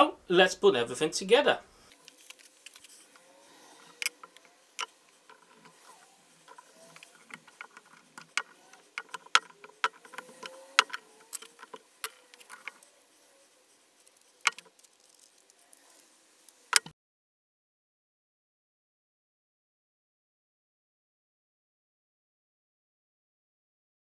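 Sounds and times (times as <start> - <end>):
small metal parts clicking: 1.9 - 13.0, 14.0 - 16.9.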